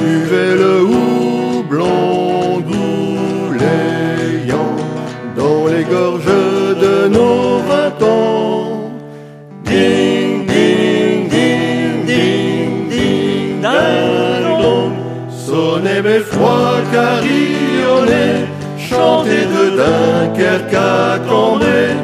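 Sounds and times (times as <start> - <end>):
men singing ding in harmony: 0.0 - 9.0, 9.6 - 22.0
acoustic guitar: 0.0 - 22.0.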